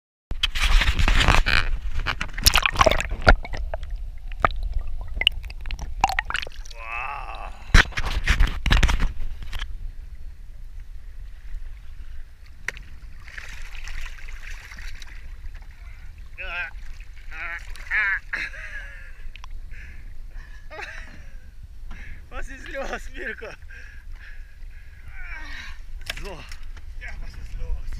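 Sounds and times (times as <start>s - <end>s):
water splashing against boat: 0.4s - 6.8s, 10.8s - 18.8s.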